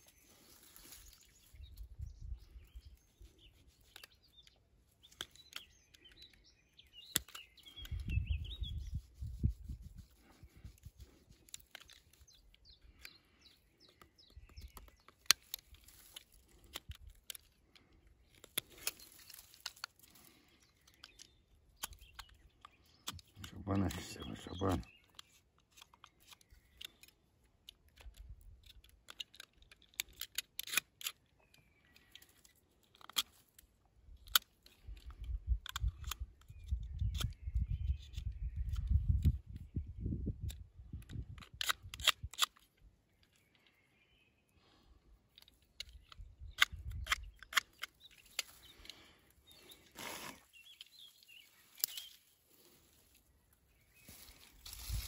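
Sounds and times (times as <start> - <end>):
faint bird chirps: 0.0 - 16.3, 36.2 - 40.6
sharp clicks and snaps: 3.2 - 8.2, 11.0 - 39.6, 40.3 - 43.7, 45.3 - 52.2.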